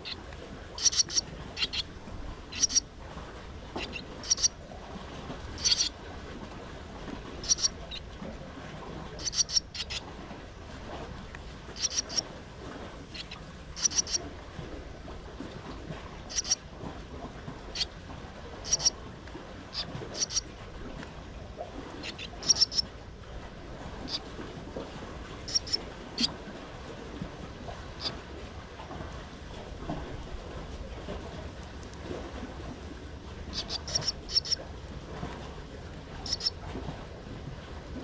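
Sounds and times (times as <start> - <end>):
swallows chirping: 0.8 - 1.9, 2.5 - 2.8, 3.8 - 4.5, 5.6 - 5.9, 7.4 - 8.0, 9.2 - 10.0, 11.8 - 12.2, 13.1 - 14.2, 16.3 - 16.6, 18.7 - 18.9, 20.1 - 20.4, 22.0 - 22.8, 25.5 - 25.8, 33.5 - 34.6, 36.3 - 36.5.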